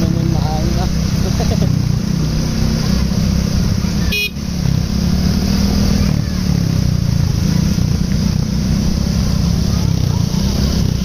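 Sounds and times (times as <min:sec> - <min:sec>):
diesel engine running: 0:00.0 - 0:11.0
loud low bus horn: 0:04.1 - 0:04.4.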